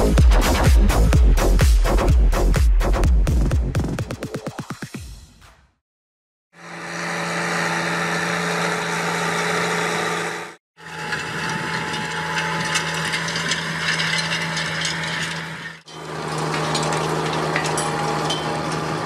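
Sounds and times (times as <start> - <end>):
tractor engine under load: 6.9 - 19.0
implement clicks and rattles: 11.0 - 19.0.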